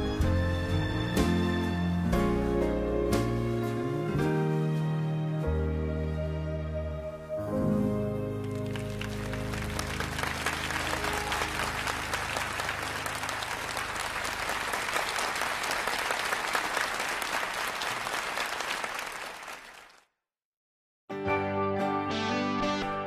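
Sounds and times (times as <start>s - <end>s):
audience applauding: 8.4s - 20.1s.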